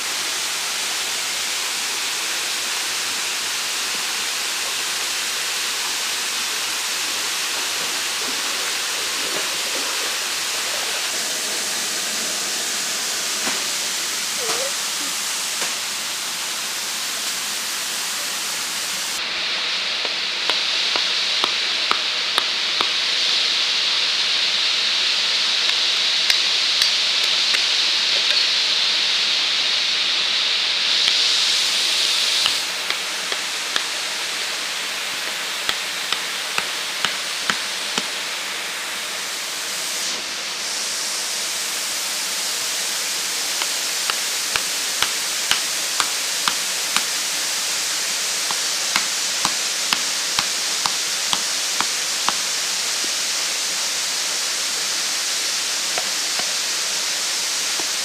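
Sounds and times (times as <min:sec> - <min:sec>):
stream and small waterfall rushing: 0:00.0 - 0:58.0
blade chopping bamboo: 0:20.0 - 0:23.0, 0:35.2 - 0:38.1, 0:43.6 - 0:47.2, 0:48.5 - 0:52.4.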